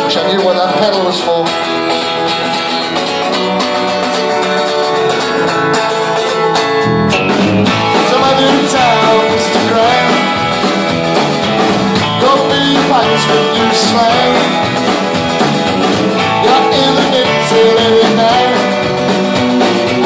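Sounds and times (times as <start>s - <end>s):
bass and drums: 0.0s - 20.0s
strummed guitars: 0.0s - 20.0s.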